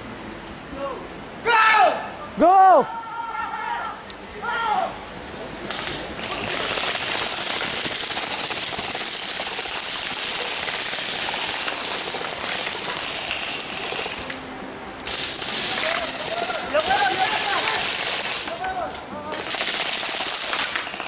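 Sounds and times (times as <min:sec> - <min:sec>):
airsoft guns full-auto rattle: 0:05.7 - 0:14.4, 0:15.0 - 0:18.7, 0:19.3 - 0:21.0.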